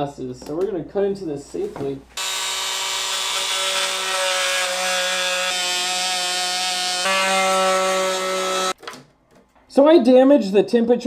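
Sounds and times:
multi-tool cutting plastic: 2.2 - 8.8.

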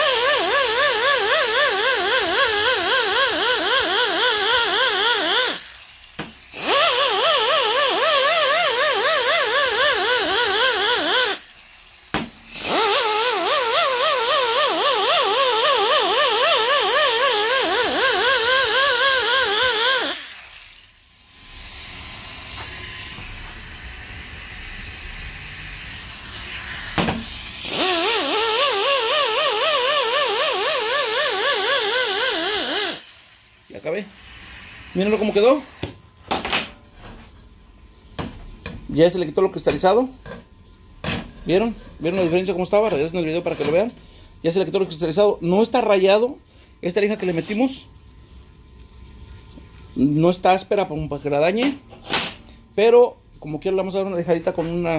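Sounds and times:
air die grinder whining: 0.0 - 11.5, 12.4 - 20.5, 26.2 - 33.1.

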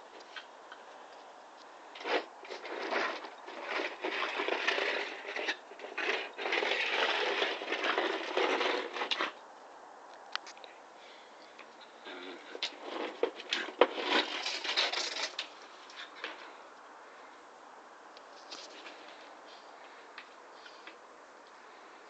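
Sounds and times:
plastic basket scraping on concrete: 2.0 - 9.4, 12.3 - 16.6.

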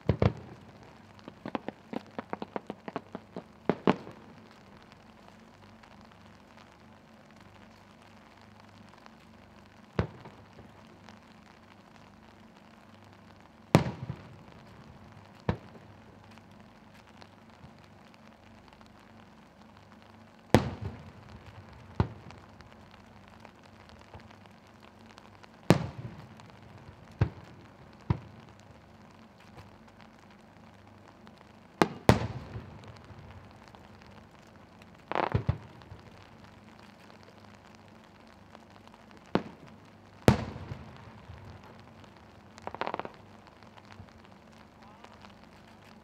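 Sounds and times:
rattle of firework reports: 0.0 - 46.0.

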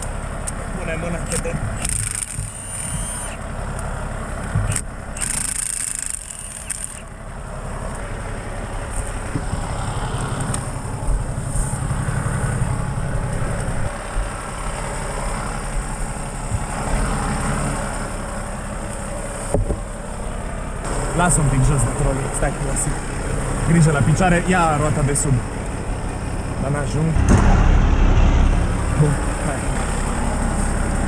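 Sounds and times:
vehicle engine idling: 0.0 - 31.0
impact wrench whirring: 1.8 - 3.4, 4.6 - 7.1.

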